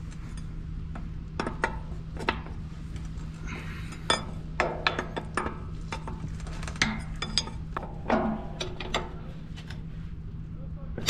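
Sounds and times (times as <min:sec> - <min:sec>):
steady low hum: 0:00.0 - 0:11.0
wrenches clinking on metal: 0:03.7 - 0:09.8.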